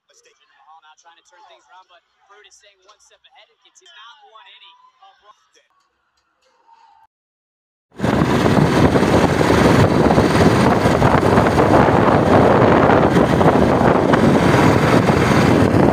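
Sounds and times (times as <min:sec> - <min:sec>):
motorcycle and road rumble: 0:08.0 - 0:15.9
wind buffeting microphone: 0:08.0 - 0:15.9.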